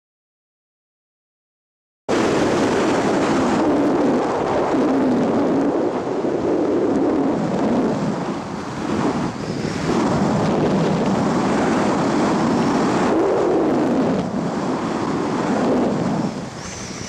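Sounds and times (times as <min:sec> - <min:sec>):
wind buffeting a microphone: 0:02.1 - 0:17.0.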